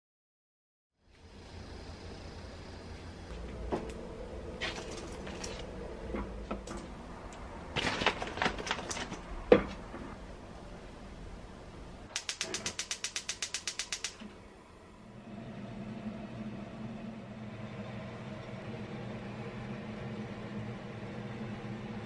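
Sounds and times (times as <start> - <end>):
gas hob igniter clicking: 12.1 - 14.3.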